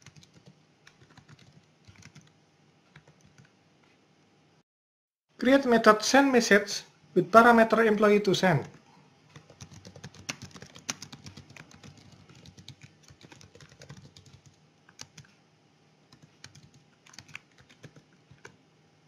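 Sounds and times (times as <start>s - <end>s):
typing on a keyboard: 0.0s - 2.3s, 2.9s - 3.5s, 8.7s - 15.3s, 16.1s - 18.6s.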